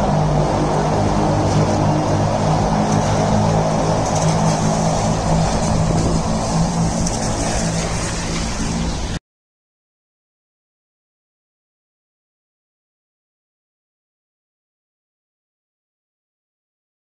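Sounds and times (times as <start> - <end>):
vehicle engine hum: 0.0 - 9.2.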